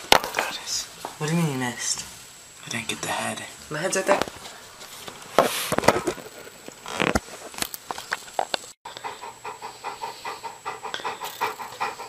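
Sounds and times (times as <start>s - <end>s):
rustling: 4.0s - 8.7s
dog panting rapidly: 8.9s - 12.0s.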